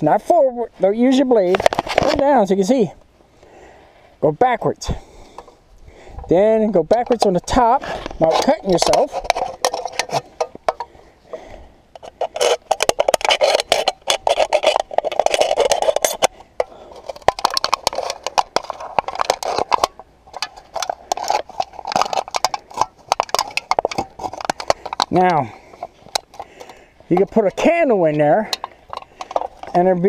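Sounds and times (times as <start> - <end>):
aluminium can crinkling and tearing: 1.4 - 2.3, 6.9 - 10.9, 12.0 - 30.0.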